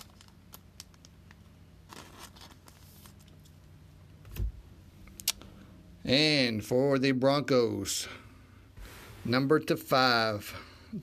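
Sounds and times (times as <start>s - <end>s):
plastic card sleeve rustling: 0.0s - 3.6s.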